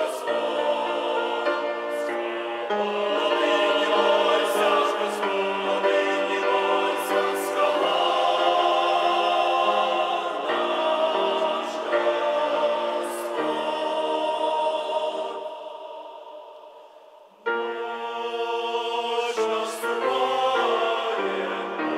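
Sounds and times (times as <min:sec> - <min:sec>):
choir singing a hymn: 0:00.0 - 0:21.9.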